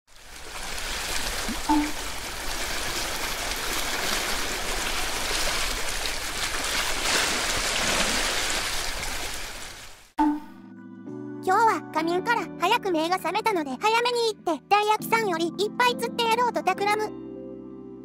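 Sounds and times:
sea water splashing on breakwater: 0.1 - 10.2.

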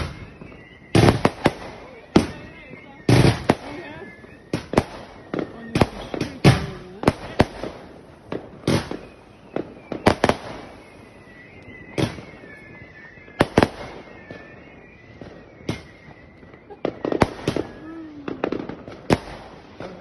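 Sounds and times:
fireworks bangs: 0.0 - 20.0.

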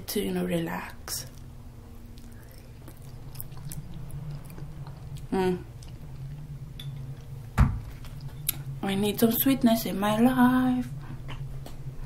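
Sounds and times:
person chewing oatmeal: 1.2 - 8.8.

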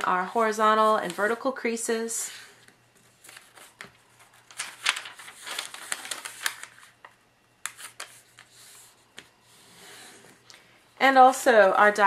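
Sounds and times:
paper rustling and clicking: 3.0 - 9.3.

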